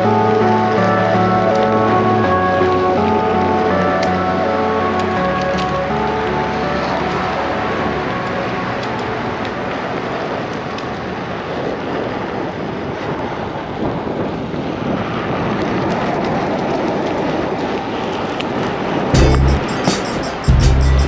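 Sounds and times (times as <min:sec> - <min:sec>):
wheel rolling noise: 0:00.0 - 0:21.0
wind rushing on microphone: 0:00.0 - 0:21.0
loud bass thumps: 0:19.2 - 0:19.7, 0:20.5 - 0:21.0.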